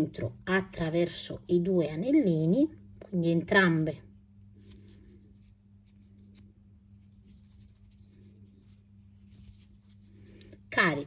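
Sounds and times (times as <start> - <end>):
faint steady hum: 0.0 - 11.0
soft rustles: 4.4 - 10.8.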